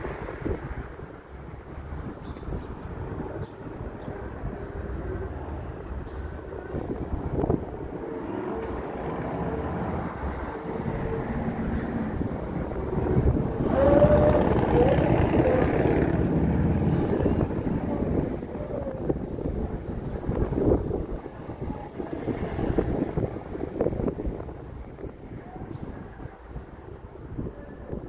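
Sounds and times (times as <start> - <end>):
train wheels rumbling on rails: 4.3 - 25.4.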